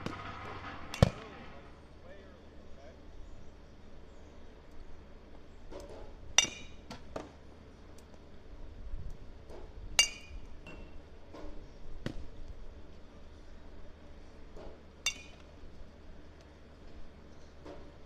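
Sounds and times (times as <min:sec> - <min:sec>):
metal bat pinging ball: 0:06.4 - 0:07.0, 0:15.0 - 0:15.5.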